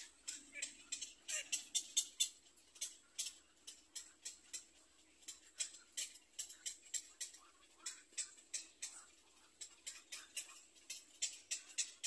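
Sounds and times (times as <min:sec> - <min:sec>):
heron chick clicking calls: 0:00.0 - 0:09.0.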